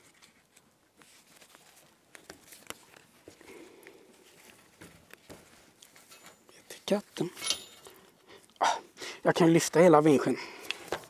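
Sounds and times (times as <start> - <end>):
soft rustle: 0.0 - 8.4.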